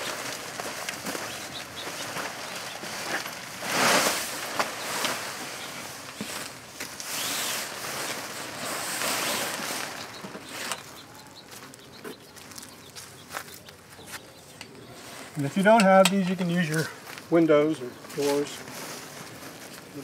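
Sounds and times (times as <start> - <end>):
nylon tent fabric rustling: 0.0 - 10.8.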